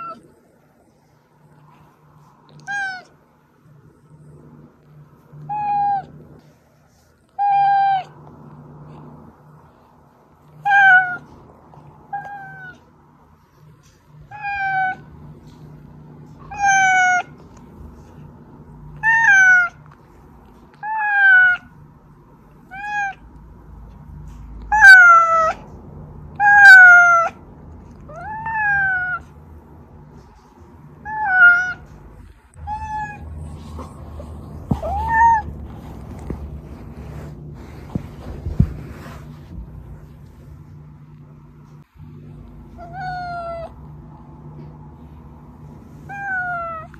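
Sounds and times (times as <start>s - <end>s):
cat meowing: 7.4s - 8.2s, 10.6s - 11.3s, 12.1s - 12.8s, 16.4s - 17.4s, 19.0s - 19.8s, 20.8s - 21.7s, 22.7s - 23.2s, 26.4s - 27.4s, 28.1s - 29.2s, 31.0s - 34.0s, 34.7s - 35.6s, 42.8s - 43.8s, 46.1s - 46.9s.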